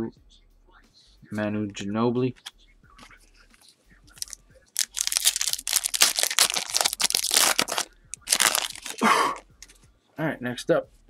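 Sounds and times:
foil wrapper tearing and crinkling: 4.2s - 9.4s.

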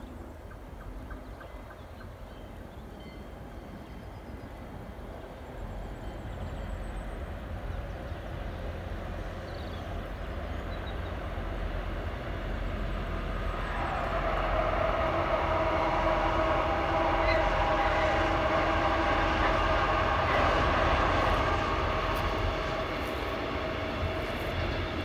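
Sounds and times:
freight train rumble: 0.0s - 25.0s
locomotive whine: 2.9s - 25.0s.

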